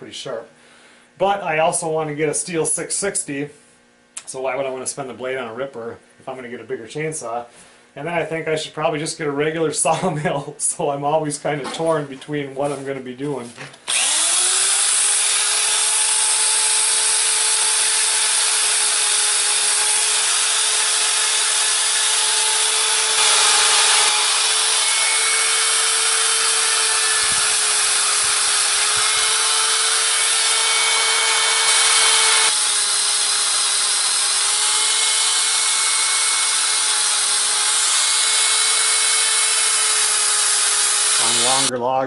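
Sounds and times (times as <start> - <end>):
rotary grinder whining: 13.9 - 41.7.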